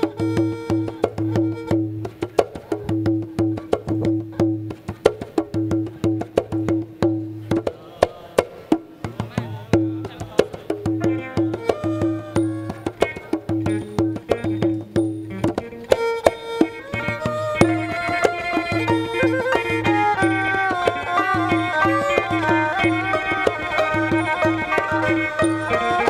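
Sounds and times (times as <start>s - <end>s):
wooden percussion strikes: 0.0s - 26.0s
held note: 11.0s - 26.0s.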